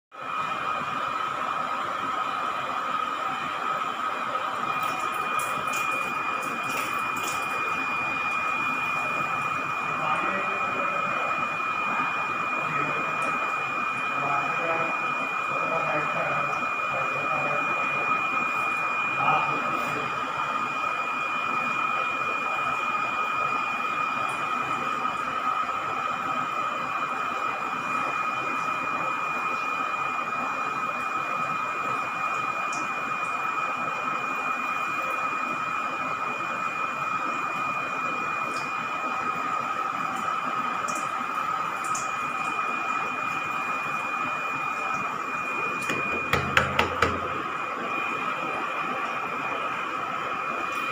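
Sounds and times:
air pump high-pitched whine: 0.1 - 50.9
aquarium aeration hiss: 38.8 - 50.9
sharp knocks: 46.2 - 47.3.

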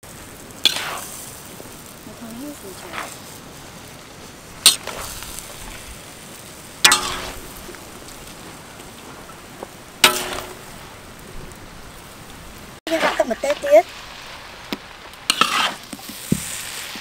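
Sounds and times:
noodles sizzling in a wok: 0.0 - 17.0
utensils clanging against wok: 4.6 - 5.1, 6.8 - 7.6, 10.0 - 10.8.

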